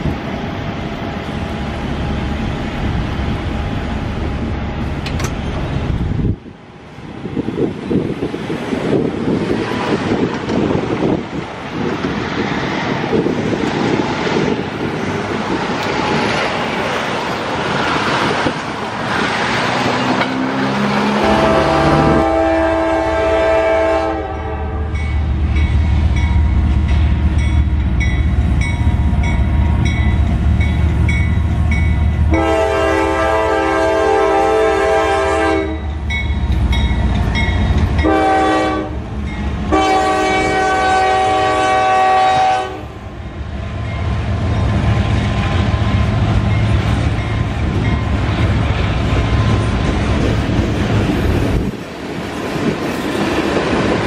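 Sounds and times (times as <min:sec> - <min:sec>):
diesel locomotive engine rumble: 0:00.0 - 0:54.0
train horn blasts: 0:21.0 - 0:25.1, 0:32.3 - 0:36.0, 0:38.0 - 0:39.0, 0:39.7 - 0:43.0.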